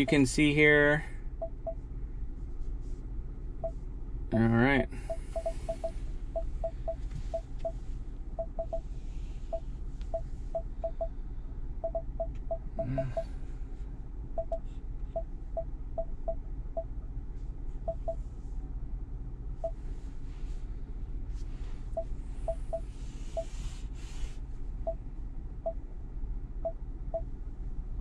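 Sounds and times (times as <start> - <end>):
touchscreen short beeps: 0.0 - 0.3, 5.0 - 7.8.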